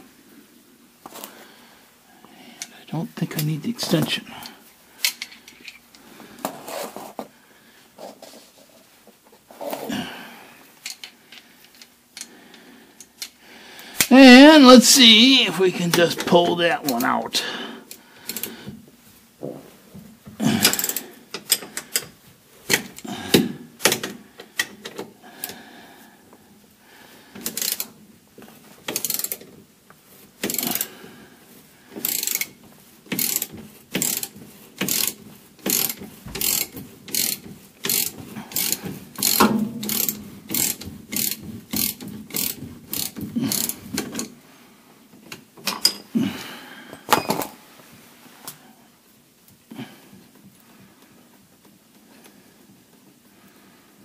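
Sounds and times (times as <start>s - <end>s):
ratchet wrench clicking: 20.6s - 22.0s, 27.4s - 27.9s, 28.9s - 29.5s, 30.4s - 30.9s, 32.0s - 44.3s.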